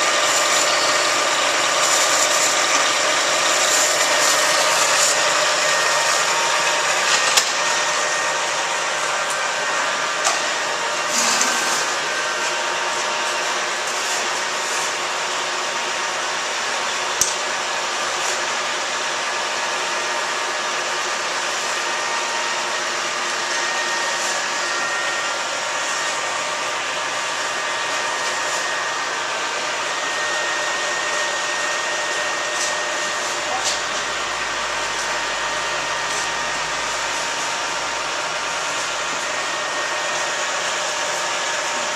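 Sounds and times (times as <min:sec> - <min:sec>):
machine-shop machinery whirring: 0:00.0 - 0:41.9.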